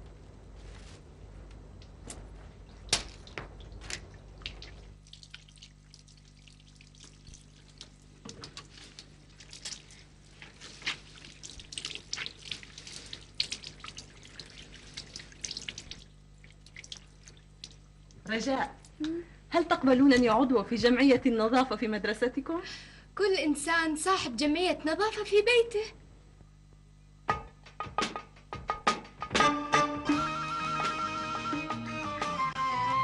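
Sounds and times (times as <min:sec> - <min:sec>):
water splashing and dripping: 0:01.8 - 0:18.3
hands washed under running tap: 0:02.7 - 0:18.2.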